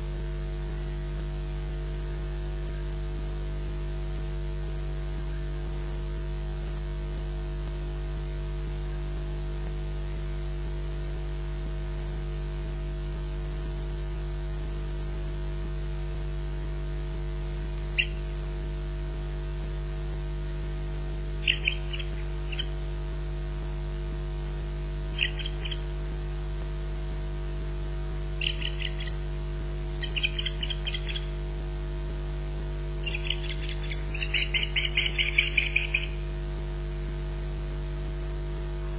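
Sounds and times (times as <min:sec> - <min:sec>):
electrical mains hum: 0:00.0 - 0:38.9
osprey warning chirps: 0:17.9 - 0:18.3, 0:21.4 - 0:22.9, 0:25.0 - 0:26.0, 0:28.4 - 0:31.6, 0:33.0 - 0:36.4.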